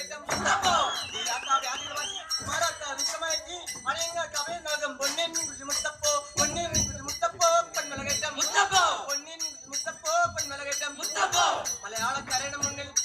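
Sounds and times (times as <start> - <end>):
men singing a folk song: 0.0 - 3.4, 6.4 - 12.9.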